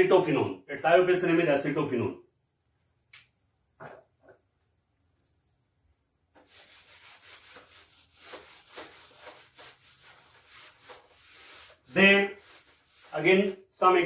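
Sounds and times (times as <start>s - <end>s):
eraser rubbing on whiteboard: 6.4s - 13.5s.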